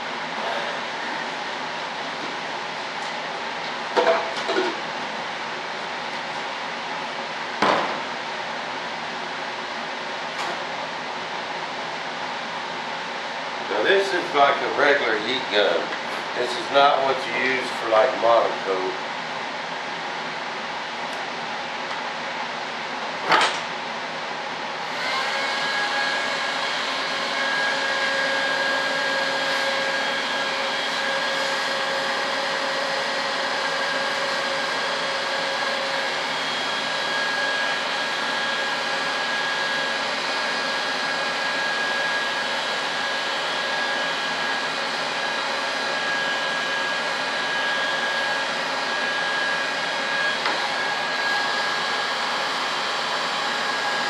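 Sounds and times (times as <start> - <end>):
heat gun blowing air with whine: 24.8 - 54.0.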